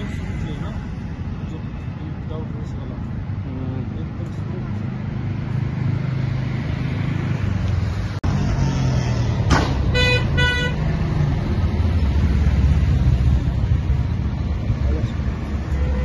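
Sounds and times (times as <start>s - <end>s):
road traffic rumble: 0.0s - 16.0s
vehicle horn beeps: 9.9s - 10.8s, 15.7s - 16.0s.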